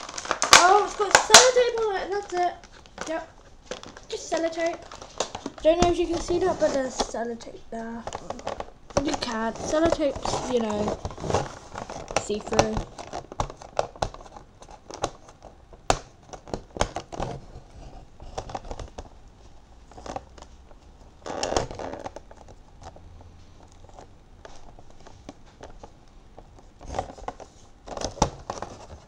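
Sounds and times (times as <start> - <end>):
toy box crinkling and scratching: 0.0 - 23.0, 23.6 - 29.0
tape peeling: 21.2 - 23.0.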